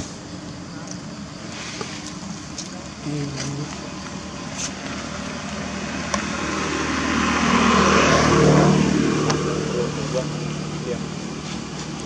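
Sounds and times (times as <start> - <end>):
motor vehicle passing: 3.7 - 12.0.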